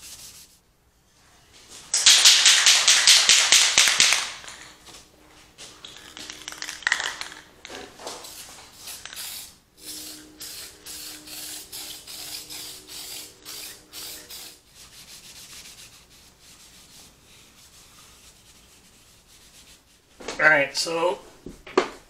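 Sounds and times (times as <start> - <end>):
aerosol can spraying hisses: 8.2 - 14.6
rag rubbing wood: 9.8 - 20.0.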